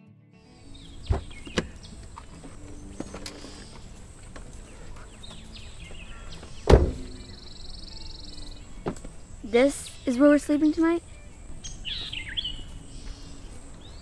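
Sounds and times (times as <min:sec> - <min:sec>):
birds chirping: 0:00.6 - 0:14.0
car door shutting thump: 0:01.0 - 0:01.8, 0:06.5 - 0:07.3
car door latch click: 0:01.1 - 0:01.8, 0:06.6 - 0:07.3.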